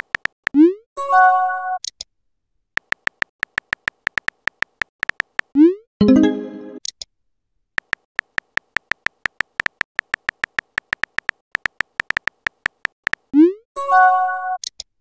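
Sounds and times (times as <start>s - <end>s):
phone keyboard typing clicks: 0.0s - 0.4s, 2.8s - 5.6s, 7.8s - 13.3s.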